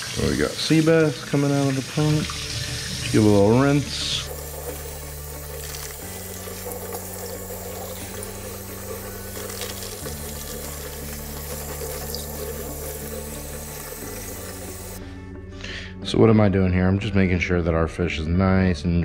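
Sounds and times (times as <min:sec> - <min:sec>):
kitchen tap running: 0:00.0 - 0:15.0.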